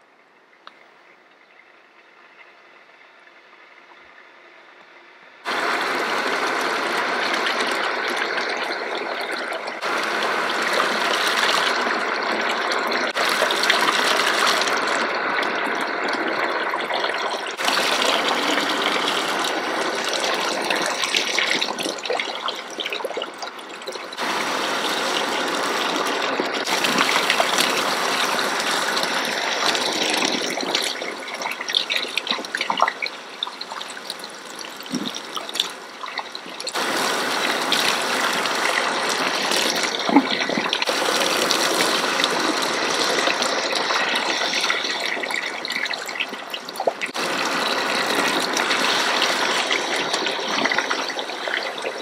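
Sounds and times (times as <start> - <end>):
water spraying on hair: 9.8 - 15.6, 17.6 - 22.9, 24.2 - 33.0, 33.6 - 52.0.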